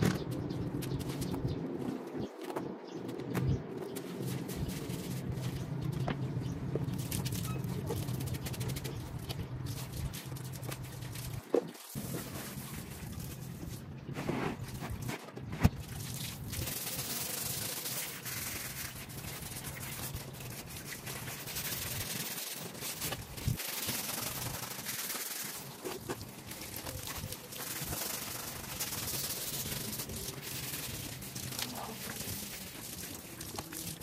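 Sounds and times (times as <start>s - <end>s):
brush scrubbing floor: 16.6s - 33.6s.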